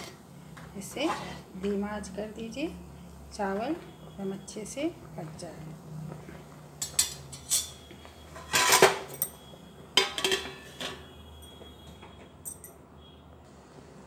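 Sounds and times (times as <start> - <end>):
metal pot lid clinking: 6.8 - 7.8, 8.4 - 9.4, 10.0 - 11.0.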